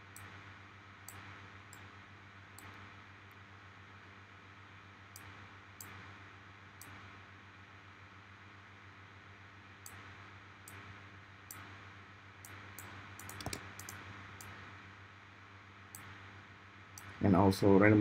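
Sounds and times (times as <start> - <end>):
low steady hum: 0.0 - 18.0
mouse and keyboard clicks: 12.8 - 14.0.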